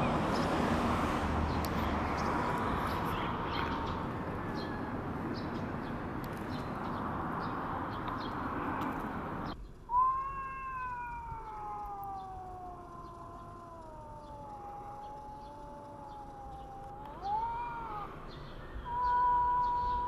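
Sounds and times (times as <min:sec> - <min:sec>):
cat yowling: 0:09.9 - 0:18.2, 0:18.8 - 0:20.0.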